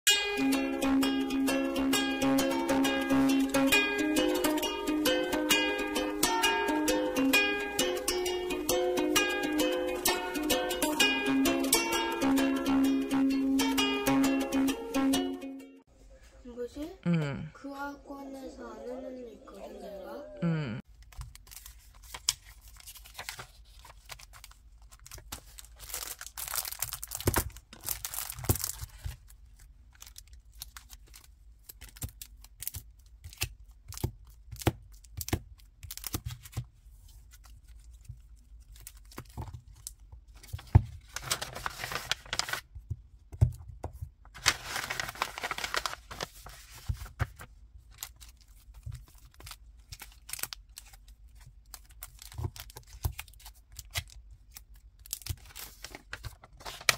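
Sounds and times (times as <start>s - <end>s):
plastic sleeves crinkling: 20.9s - 42.7s, 44.3s - 56.9s.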